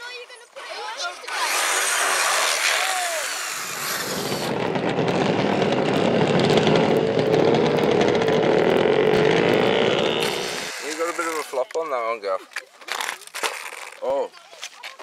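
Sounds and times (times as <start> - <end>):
rc buggy spraying dirt: 0.6 - 11.8
loud motor buzz rising in pitch: 1.3 - 11.6.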